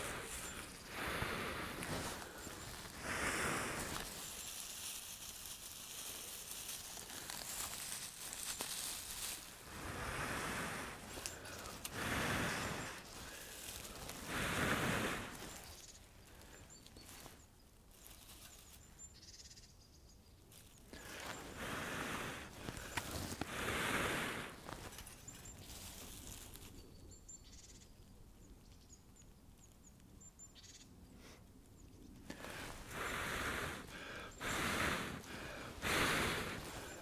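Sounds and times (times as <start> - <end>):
faint bird chirps: 15.2 - 21.5, 24.9 - 32.3.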